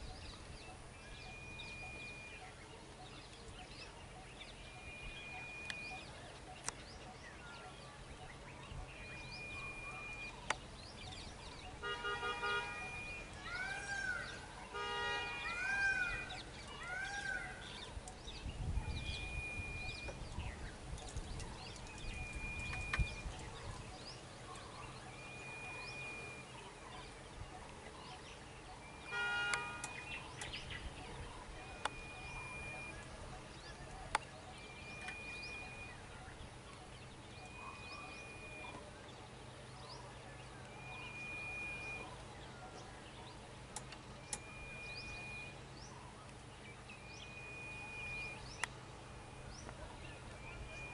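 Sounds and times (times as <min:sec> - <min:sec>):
short horn toots: 0:29.1 - 0:30.1.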